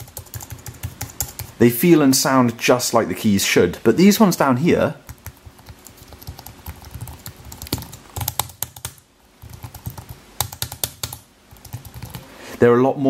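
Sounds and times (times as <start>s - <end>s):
keyboard keys clicking: 0.0s - 1.5s, 5.1s - 12.2s.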